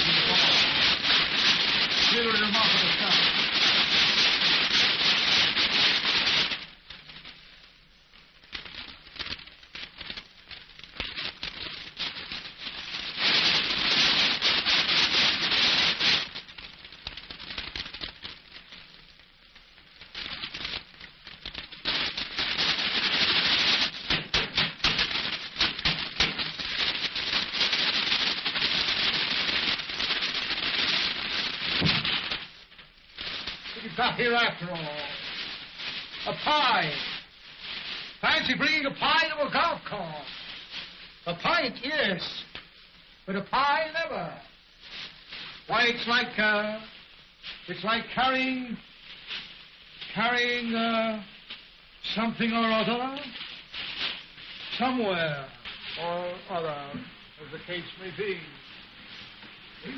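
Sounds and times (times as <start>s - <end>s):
paper crinkling and rustling: 8.5s - 12.8s, 16.2s - 41.0s, 52.4s - 56.2s.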